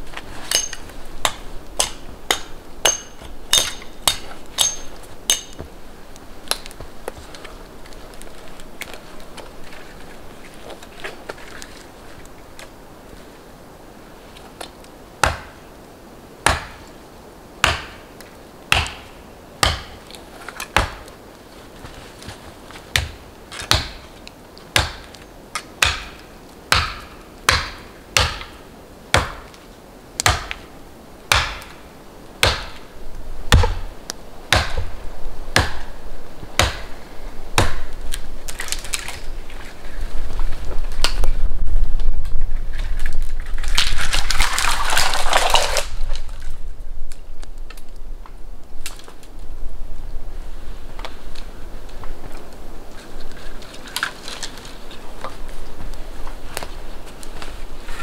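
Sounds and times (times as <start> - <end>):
axe chopping wood: 0.5 - 5.7, 15.2 - 15.6, 16.4 - 16.8, 17.6 - 18.0, 18.7 - 20.0, 20.7 - 21.1, 22.9 - 24.0, 24.8 - 25.1, 25.8 - 28.6, 29.2 - 29.5, 30.2 - 30.6, 31.3 - 31.7, 32.4 - 32.8, 33.5 - 33.9, 34.5 - 34.9, 35.6 - 35.9, 36.6 - 36.9, 37.6 - 38.0
tree falling through branches: 37.8 - 49.6.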